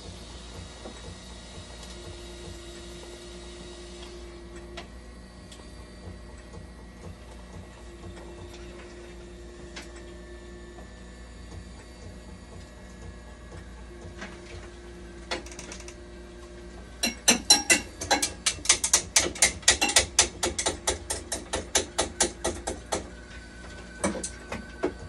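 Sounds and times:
rapid mechanical clicking: 4.5 - 8.6, 15.2 - 16.0, 17.0 - 23.3.

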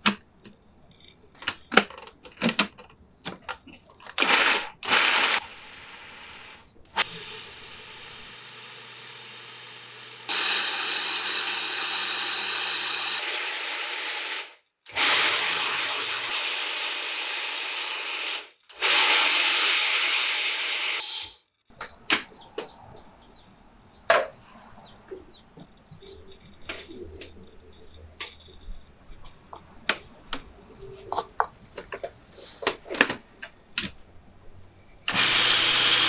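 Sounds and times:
food processor grinding: 4.1 - 21.3, 35.1 - 36.0.

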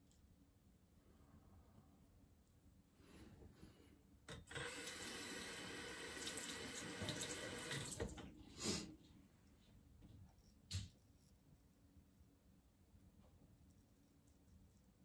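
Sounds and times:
water running from a tap: 4.3 - 8.3.

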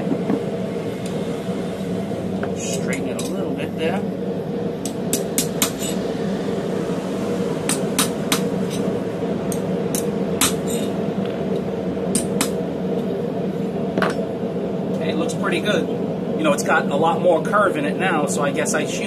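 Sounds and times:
steady low hum: 0.0 - 19.0
hammer striking hot steel: 4.8 - 6.0, 7.6 - 8.9, 9.5 - 11.0, 12.1 - 12.6.

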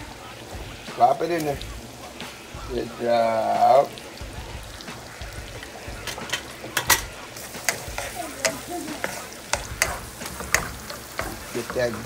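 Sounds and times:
butter sizzling in a pan: 0.0 - 12.0
utensil clicking against a pan: 5.6 - 12.0.

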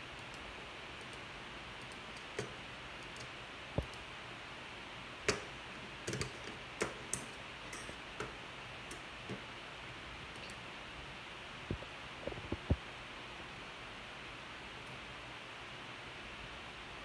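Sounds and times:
light clicks and taps: 1.8 - 4.0.

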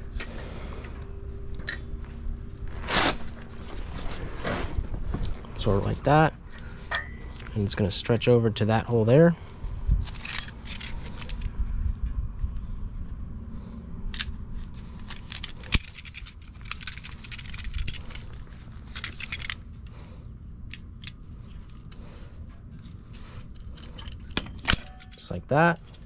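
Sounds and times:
metal spring clinking: 23.5 - 26.0.

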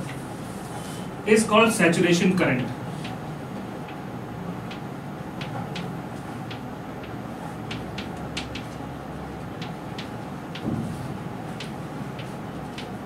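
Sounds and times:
low room hum: 0.0 - 13.0
chalk tapping on chalkboard: 5.4 - 13.0.

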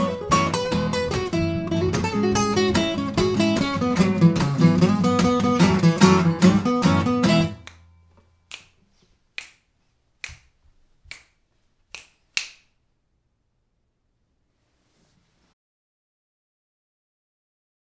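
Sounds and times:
acoustic guitars strummed: 0.0 - 8.1
finger snaps: 7.5 - 7.9, 8.5 - 12.8.

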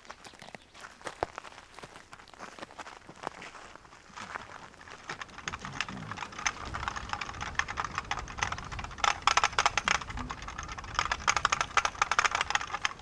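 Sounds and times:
keyboard keys clicking: 4.8 - 13.0.

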